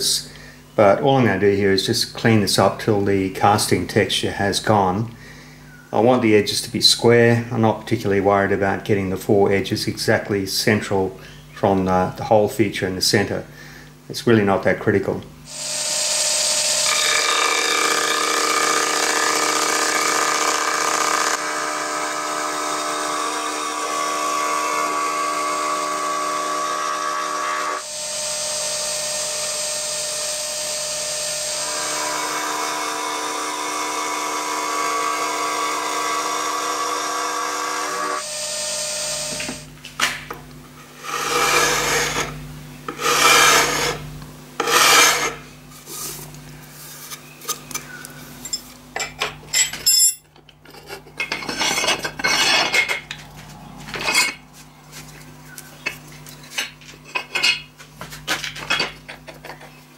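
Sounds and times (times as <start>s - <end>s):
milling machine cutting whine: 15.5s - 39.7s, 41.0s - 44.0s
hand scraping strokes: 40.9s - 47.2s, 54.5s - 55.4s.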